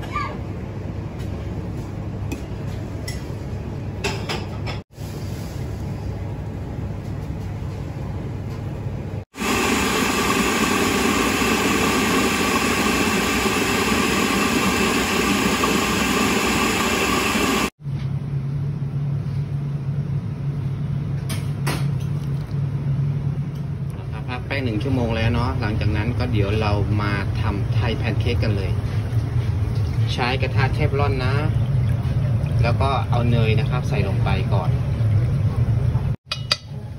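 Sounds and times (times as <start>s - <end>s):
food processor blending liquid: 9.3s - 17.7s.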